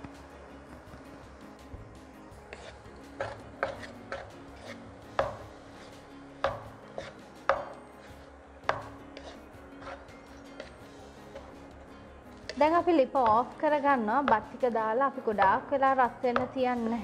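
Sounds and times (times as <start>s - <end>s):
wooden spatula knocking a pot: 2.5s - 5.5s, 6.4s - 7.8s, 8.6s - 11.5s, 12.4s - 14.6s, 16.2s - 16.7s.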